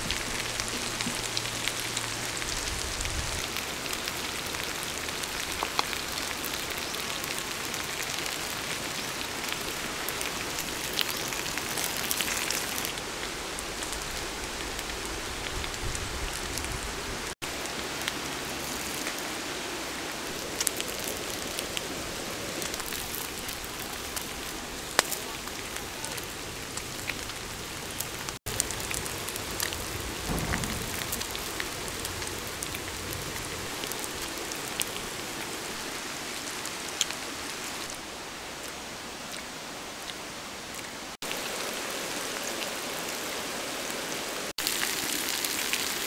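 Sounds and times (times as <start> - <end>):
meat sizzling on hot stone: 17.5 - 19.6, 44.6 - 46.0
small pops and crackles: 26.8 - 35.0.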